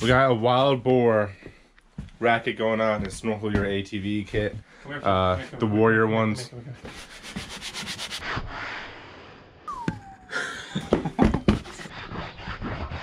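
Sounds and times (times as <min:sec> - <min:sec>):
knocks and scrapes on plastic: 0:11.2 - 0:11.9.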